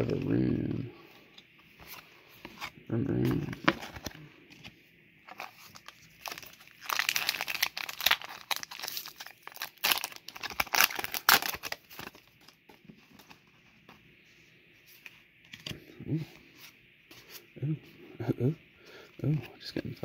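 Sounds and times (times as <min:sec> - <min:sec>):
cards rustling: 0:01.7 - 0:13.9
foil wrapper crinkling and tearing: 0:05.3 - 0:12.6.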